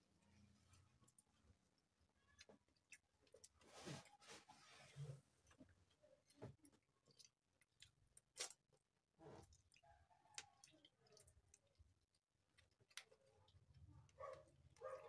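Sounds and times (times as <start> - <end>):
chewing clicks and smacks: 5.5 - 15.0.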